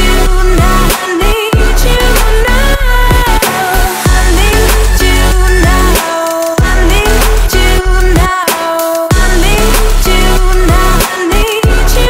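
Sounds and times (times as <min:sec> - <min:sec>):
held synth chords: 0:01.5 - 0:06.0, 0:09.1 - 0:11.0.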